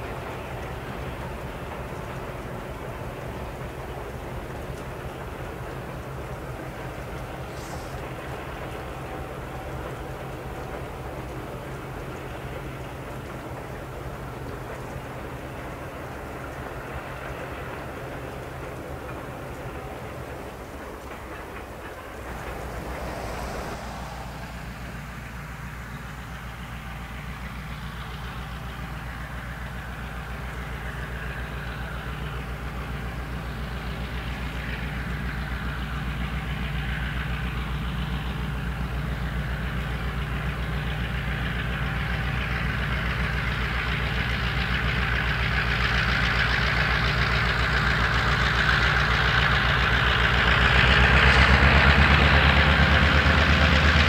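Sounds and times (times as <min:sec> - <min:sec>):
diesel locomotive engine drone: 0:00.0 - 0:54.0
hiss: 0:07.2 - 0:09.2, 0:21.0 - 0:26.2.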